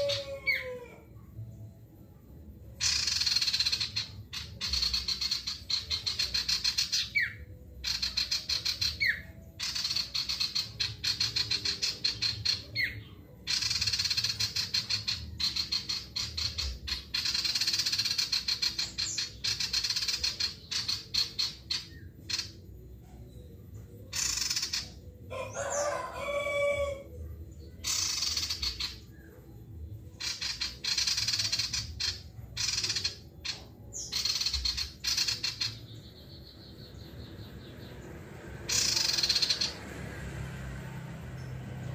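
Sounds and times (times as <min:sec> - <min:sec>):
harsh bird call: 0:00.0 - 0:01.0, 0:38.7 - 0:39.8
songbird chattering trills: 0:02.8 - 0:22.7, 0:24.1 - 0:25.0, 0:27.8 - 0:29.3, 0:30.1 - 0:38.0, 0:38.7 - 0:39.8.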